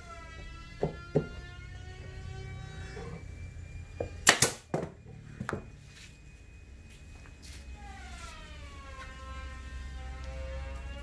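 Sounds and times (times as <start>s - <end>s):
nail gun firing: 4.2s - 4.8s.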